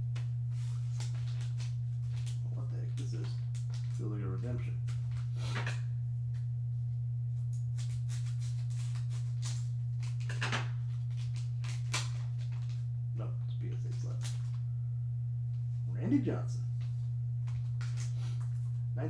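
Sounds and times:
steady low hum: 0:00.0 - 0:19.0
foil pack crinkling: 0:00.2 - 0:05.6, 0:07.7 - 0:12.8, 0:13.8 - 0:14.6, 0:17.4 - 0:18.7.

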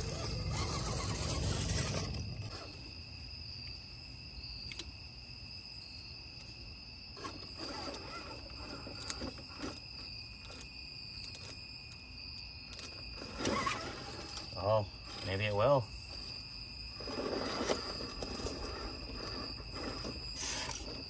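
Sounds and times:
short bursts of scraping: 0:00.0 - 0:02.9, 0:07.2 - 0:09.9, 0:13.0 - 0:21.0
night insects trilling: 0:00.0 - 0:21.0.

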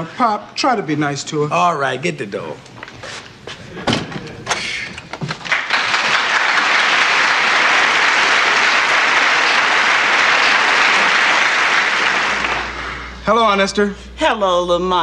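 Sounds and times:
studio audience applauding: 0:05.4 - 0:13.0.

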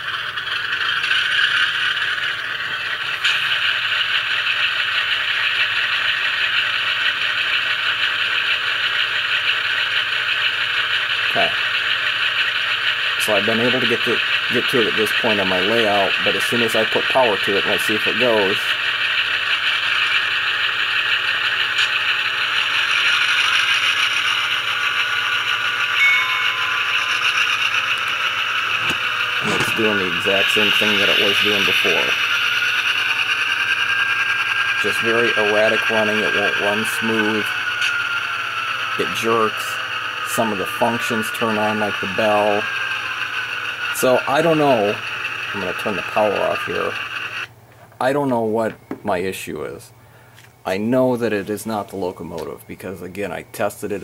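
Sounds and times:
model locomotive diesel engine sound: 0:00.0 - 0:54.0
short high tone: 0:25.9 - 0:28.4.

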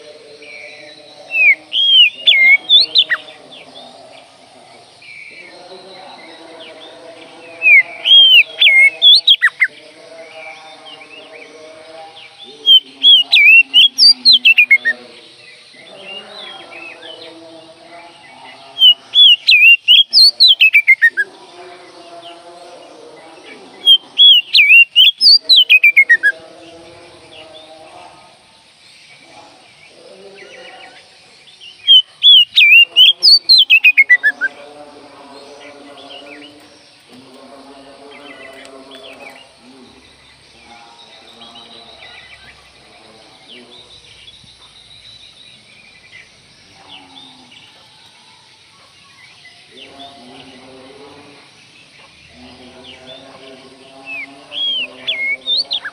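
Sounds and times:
bird singing whistled phrases: 0:01.3 - 0:03.2, 0:07.7 - 0:09.7, 0:12.7 - 0:14.9, 0:18.8 - 0:21.2, 0:23.9 - 0:26.3, 0:31.8 - 0:34.4, 0:54.1 - 0:55.9.

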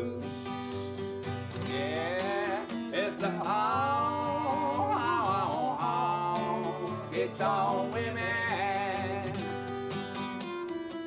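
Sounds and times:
man singing: 0:00.0 - 0:09.9
acoustic guitar strumming: 0:00.0 - 0:11.0.

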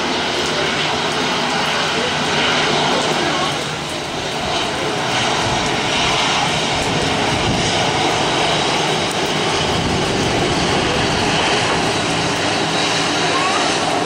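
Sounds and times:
jet engines running: 0:00.0 - 0:14.0.

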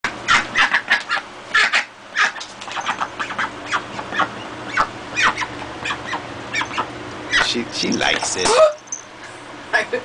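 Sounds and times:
duck quacking: 0:00.2 - 0:02.4, 0:03.0 - 0:07.5.

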